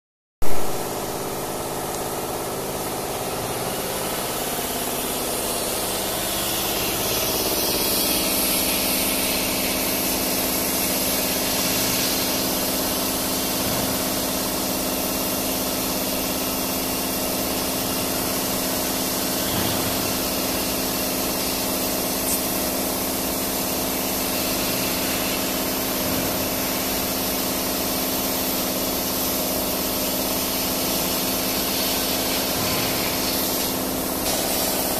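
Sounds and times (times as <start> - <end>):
laser cutter machine hum: 0.4 - 34.9
airy hiss: 4.1 - 13.2.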